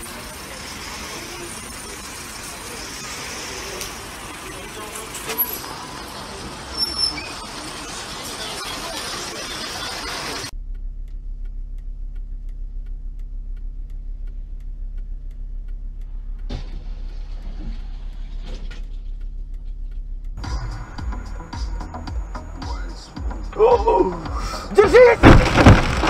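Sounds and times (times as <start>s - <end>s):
loud street noise: 0.0s - 10.5s, 20.4s - 26.0s
low in-car drone: 10.3s - 26.0s
faint regular ticking: 10.5s - 23.4s
rattling debris: 24.8s - 26.0s
car crashing into pole: 25.0s - 26.0s.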